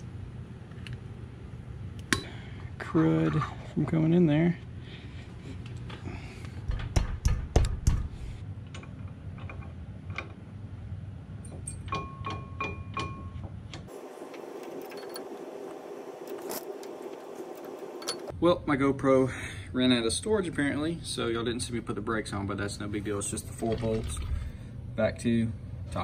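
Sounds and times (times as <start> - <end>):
light ringing metallic taps: 11.4 - 13.5.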